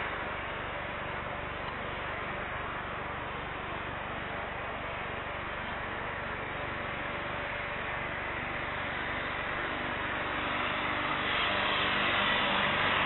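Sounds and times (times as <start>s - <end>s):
jet engines rushing: 7.4s - 13.0s.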